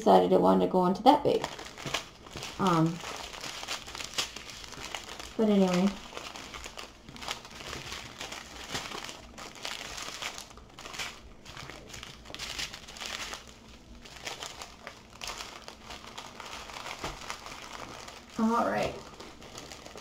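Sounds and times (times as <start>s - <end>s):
plastic packaging crinkling: 1.2s - 20.0s.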